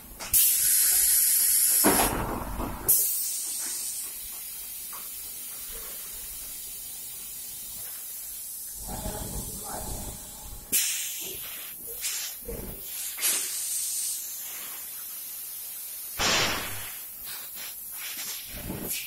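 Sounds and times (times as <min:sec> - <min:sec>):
compressed air hissing: 0:00.3 - 0:02.2, 0:02.9 - 0:19.0
machine hum: 0:08.7 - 0:10.8.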